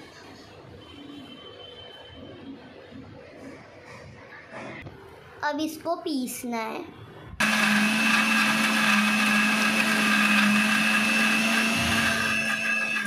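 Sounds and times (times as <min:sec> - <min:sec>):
mixer grinder motor whine: 0:07.4 - 0:13.0.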